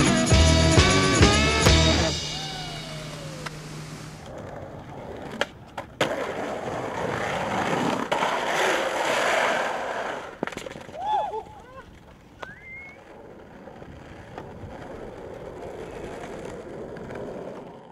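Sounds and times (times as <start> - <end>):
music: 0.0 - 3.9
skateboard wheels rolling: 0.0 - 17.9
skateboard clacks: 4.2 - 17.9.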